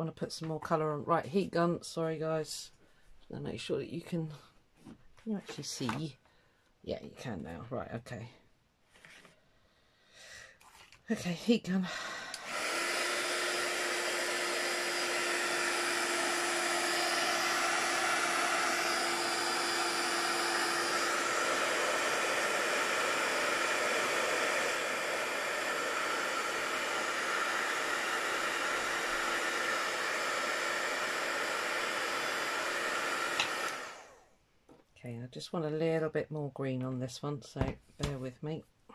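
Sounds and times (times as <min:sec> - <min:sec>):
heat gun blowing air: 0:11.9 - 0:34.3.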